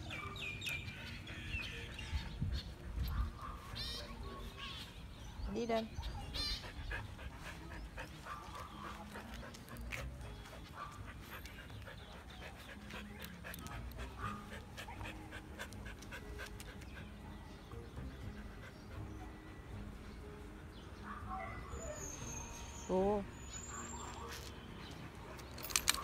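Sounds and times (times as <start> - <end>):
dog panting: 5.9 - 17.2, 18.1 - 19.3.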